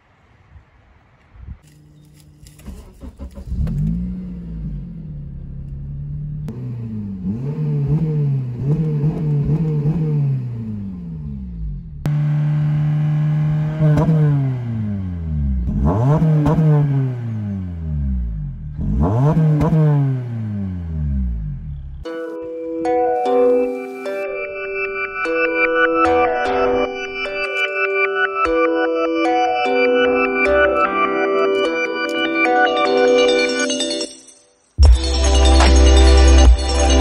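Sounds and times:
car engine starting: 1.6s - 22.4s
car engine revving: 2.0s - 22.1s.

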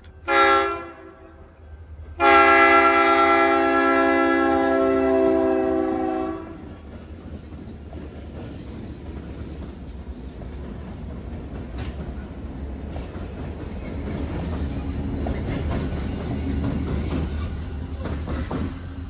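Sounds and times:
locomotive rumbling: 0.0s - 19.0s
locomotive air horn chord: 0.2s - 1.5s, 2.2s - 6.7s
train wheels clacking on rails: 1.9s - 19.0s.

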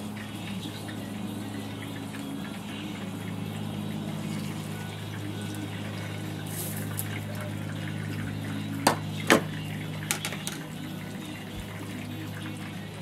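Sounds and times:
oil sizzling and bubbling: 0.0s - 13.0s
utensil taps: 8.8s - 9.5s.

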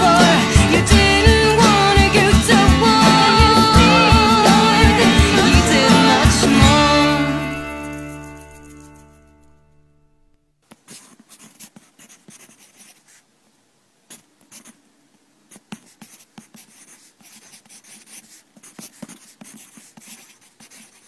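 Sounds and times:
pen scratching on paper: 2.2s - 9.5s, 10.7s - 13.3s, 14.1s - 14.8s, 15.5s - 21.0s.

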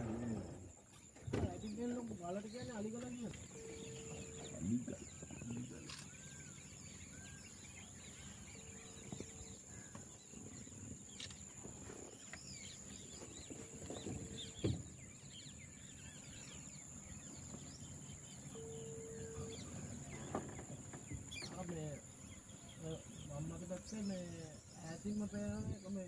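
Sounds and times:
small birds chirping: 0.0s - 26.0s
thump: 1.2s - 1.6s, 14.1s - 14.9s.

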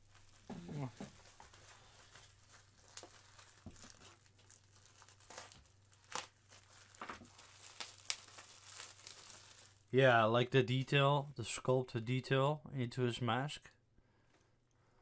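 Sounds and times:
plastic wrap crinkling: 0.0s - 10.0s.

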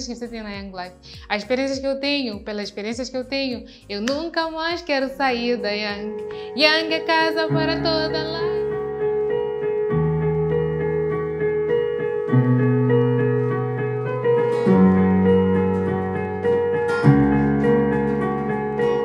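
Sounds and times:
electric keyboard chords: 0.0s - 19.0s
acoustic guitar strumming: 12.0s - 19.0s.

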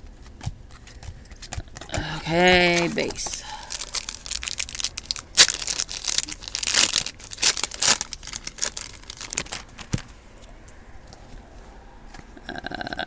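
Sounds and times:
cards shuffling and flicking: 0.0s - 4.2s.

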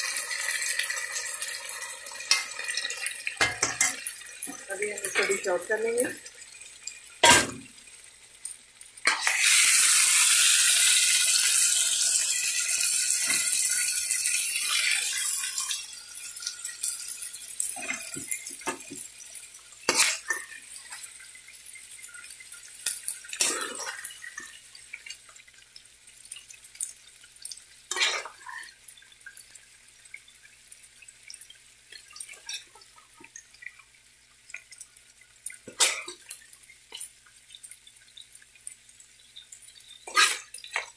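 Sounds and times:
meat sizzling in a wok: 0.0s - 40.9s
metal spatula scraping a pan: 9.1s - 9.8s, 19.9s - 21.0s, 27.9s - 28.7s, 40.0s - 40.9s.

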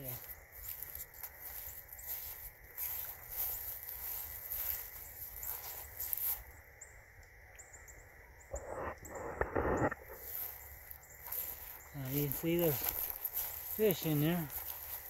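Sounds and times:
rustling: 0.0s - 6.5s, 9.9s - 15.0s
insects chirring: 0.0s - 15.0s.

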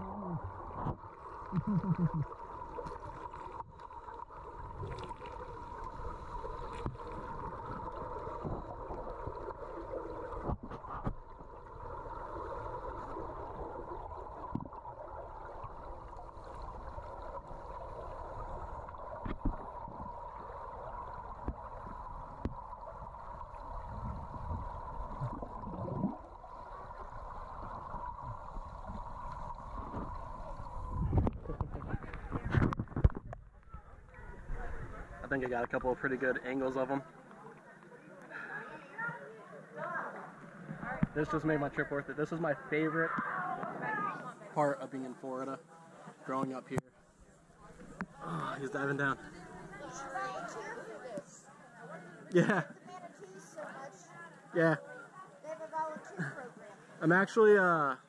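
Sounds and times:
muffled underwater hiss: 0.0s - 58.0s.

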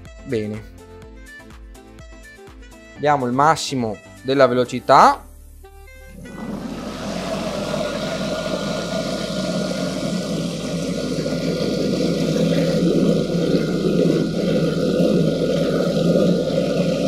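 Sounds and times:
food processor blades whirring: 6.1s - 17.0s.

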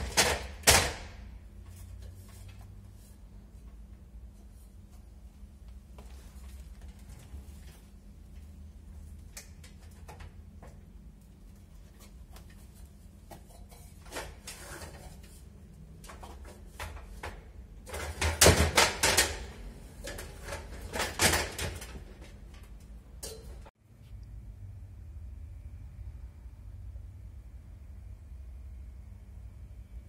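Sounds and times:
aluminium ladder knocks and clicks: 0.0s - 2.6s, 9.3s - 11.0s, 16.0s - 23.7s
ladder clattering and scraping: 0.0s - 8.0s, 11.6s - 23.7s.

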